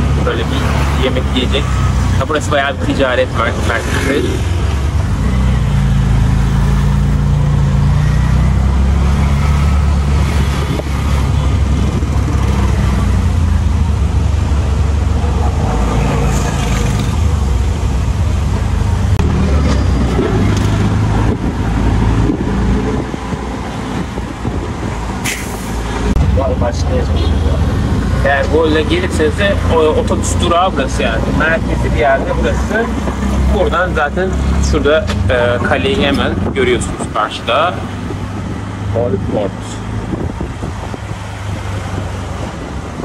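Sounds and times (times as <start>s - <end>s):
street noise: 0.0s - 43.0s.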